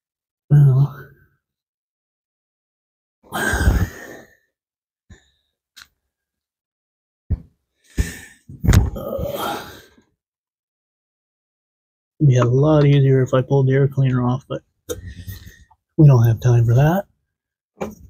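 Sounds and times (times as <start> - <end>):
man sighing and grunting: 0.5 - 1.2, 3.3 - 4.2, 8.9 - 10.0.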